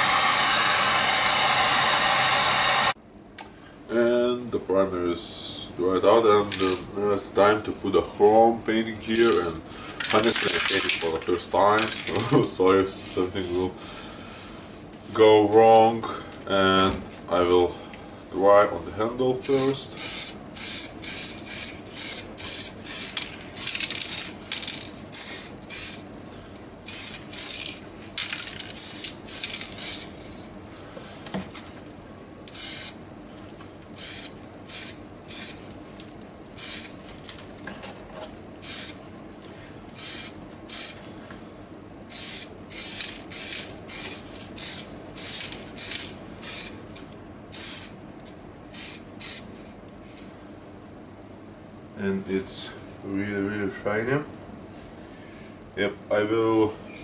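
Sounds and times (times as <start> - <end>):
spray paint can hissing: 20.0 - 26.0, 26.9 - 30.1, 32.5 - 33.0, 34.0 - 35.6, 36.6 - 37.0, 38.6 - 39.0, 40.0 - 41.0, 42.1 - 46.8, 47.5 - 47.9, 48.7 - 49.5.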